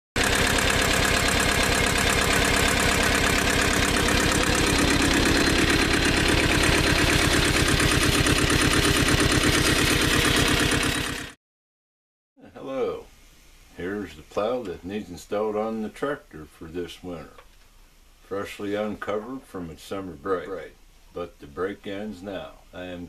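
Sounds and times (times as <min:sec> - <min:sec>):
tractor diesel engine idling: 0:00.2 - 0:11.4.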